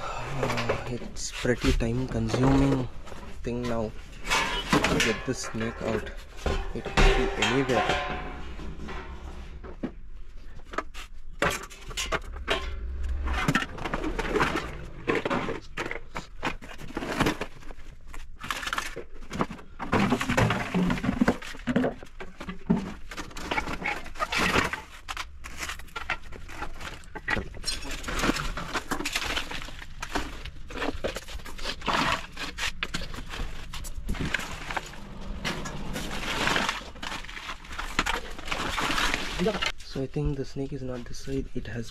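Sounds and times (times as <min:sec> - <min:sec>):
junk clattering and knocking: 0:00.4 - 0:39.8
plastic bags rustling: 0:23.0 - 0:40.0.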